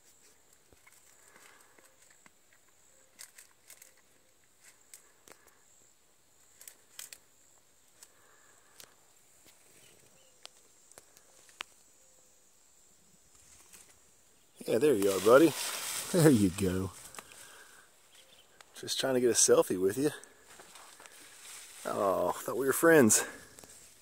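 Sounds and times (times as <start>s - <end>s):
crackles and snaps: 6.4s - 7.3s, 7.9s - 11.8s, 17.0s - 17.4s.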